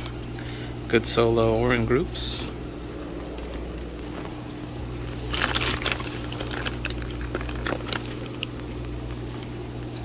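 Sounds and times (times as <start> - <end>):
steady low hum: 0.0 - 10.0
plastic bags crinkling: 3.2 - 9.8.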